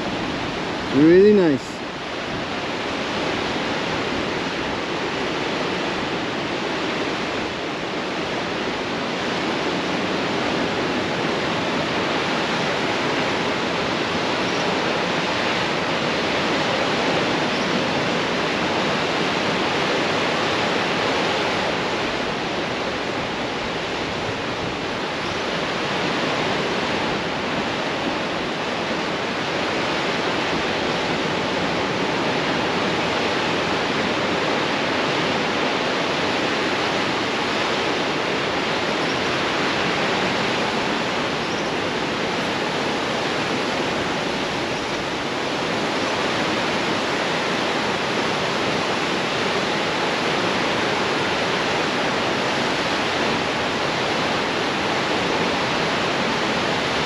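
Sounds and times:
surf washing over stony shore: 0:00.0 - 0:57.0.

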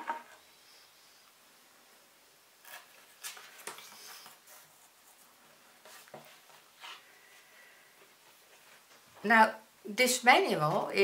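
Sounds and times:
paper rustling and scraping: 0:02.6 - 0:07.1.

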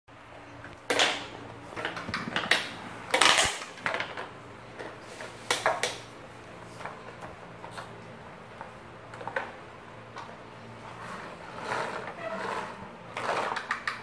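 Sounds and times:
plastic toy trucks clacking: 0:00.9 - 0:06.0, 0:11.0 - 0:14.0.

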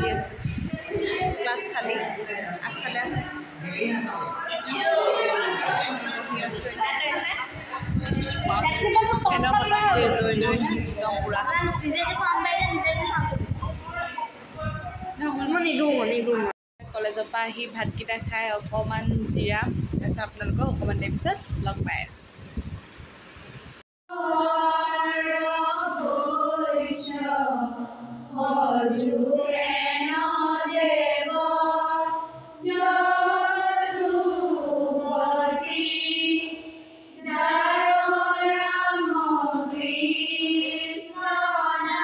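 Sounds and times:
girls singing in unison: 0:00.0 - 0:08.0, 0:24.1 - 0:42.0.

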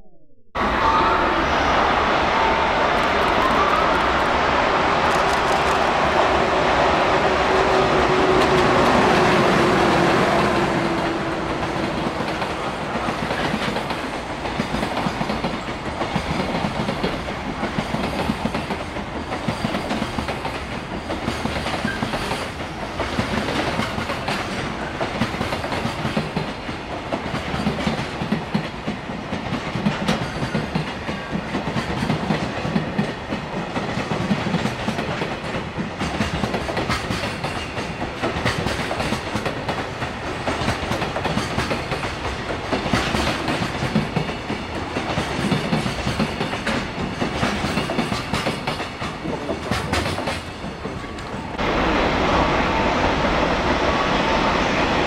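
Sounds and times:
train wheels clattering over rail joints: 0:33.8 - 0:51.4.

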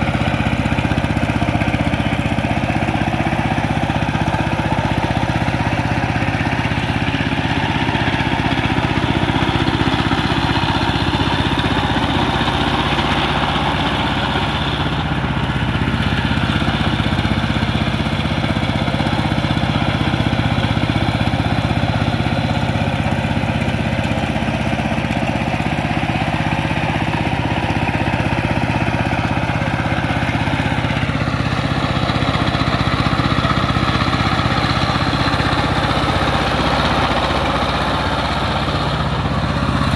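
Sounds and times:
diesel tiller engine running: 0:00.0 - 0:39.9
wheels churning through water: 0:00.0 - 0:39.9.

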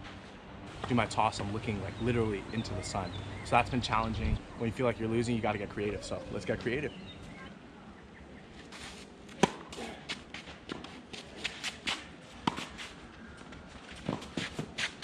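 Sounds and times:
racket hitting tennis ball: 0:09.3 - 0:12.9, 0:14.0 - 0:15.0
footsteps and shoe scuffs: 0:13.9 - 0:15.0.

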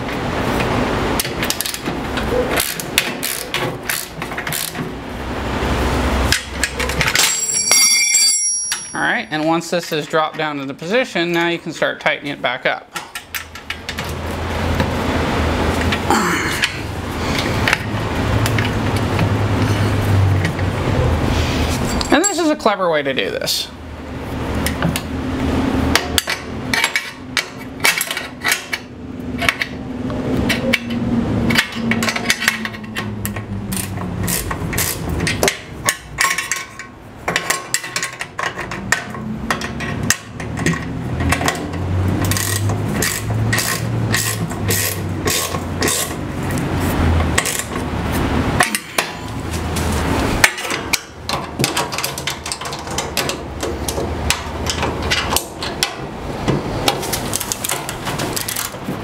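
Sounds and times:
hand tools clicking on metal: 0:00.6 - 0:04.9, 0:06.3 - 0:10.4, 0:25.9 - 0:29.8, 0:30.4 - 0:47.8, 0:48.6 - 0:59.0.

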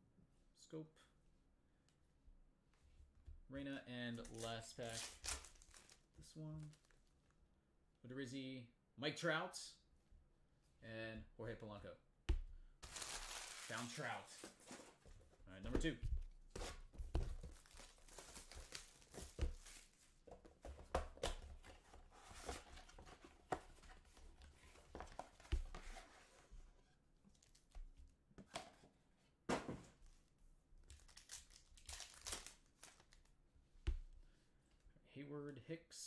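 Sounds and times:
shrink wrap crinkling and tearing: 0:04.2 - 0:07.0, 0:12.8 - 0:14.4, 0:17.4 - 0:20.0, 0:30.9 - 0:33.3
foil pack crinkling: 0:04.4 - 0:06.0, 0:12.8 - 0:14.3, 0:31.0 - 0:33.1.

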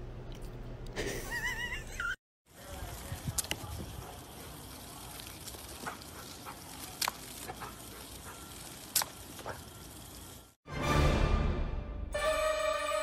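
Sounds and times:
water stream pattering on grass: 0:02.5 - 0:10.4.

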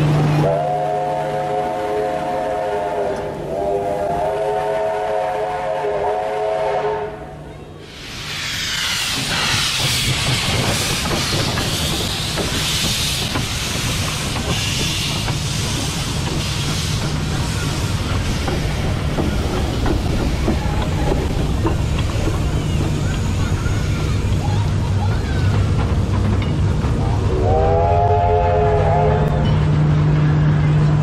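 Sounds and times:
steam train rumble and hiss: 0:00.0 - 0:31.0
wheels clicking over rails: 0:09.0 - 0:27.2.

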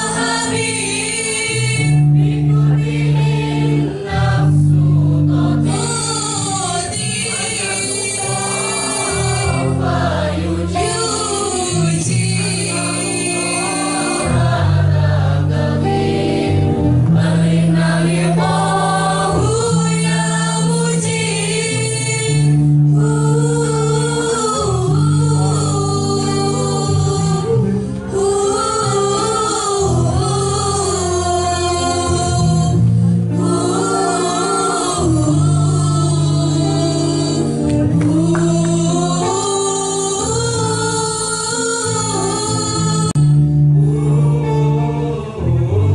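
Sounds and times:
choir singing in harmony: 0:00.0 - 0:45.9.

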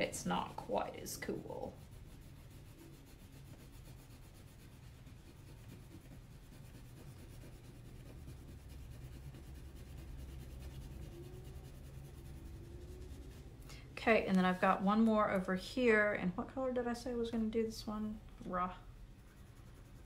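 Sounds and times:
low background hum: 0:00.0 - 0:20.0
crayon scratching on paper: 0:00.1 - 0:13.5, 0:19.1 - 0:20.0.

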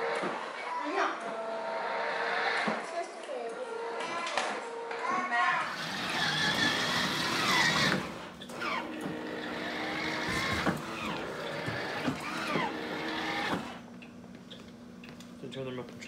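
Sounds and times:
electric ride-on toy whining: 0:03.6 - 0:13.9.

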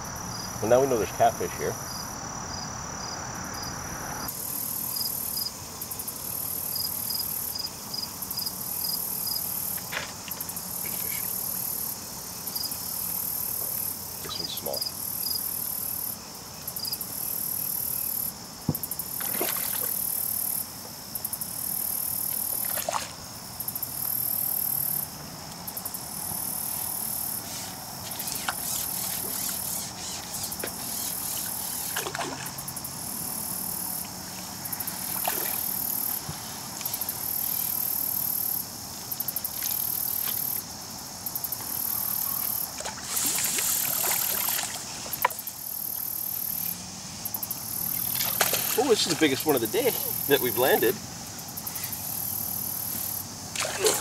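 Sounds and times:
insects chirping: 0:00.0 - 0:54.0
fish splashing in water: 0:19.1 - 0:20.2, 0:22.4 - 0:23.2, 0:31.8 - 0:32.6, 0:35.0 - 0:36.0, 0:42.7 - 0:45.4, 0:48.0 - 0:49.6, 0:53.5 - 0:54.0.

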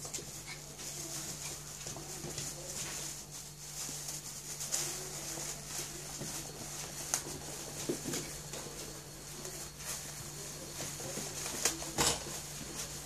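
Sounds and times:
puppy paws pattering on tiles: 0:00.0 - 0:13.0.

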